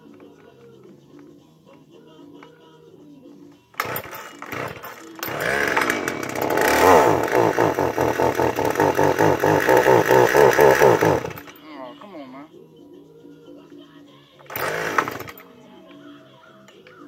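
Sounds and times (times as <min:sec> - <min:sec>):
chainsaw engine running unevenly: 0:03.8 - 0:11.6, 0:14.5 - 0:15.4.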